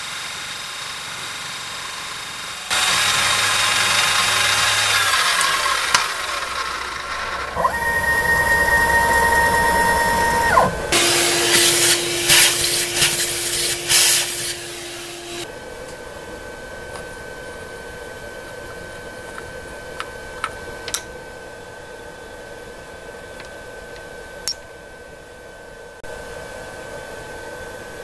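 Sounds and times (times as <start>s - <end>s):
mill cutting metal: 0.0s - 15.5s
spindle whine winding down: 0.0s - 15.5s
steady motor hum: 0.0s - 28.0s.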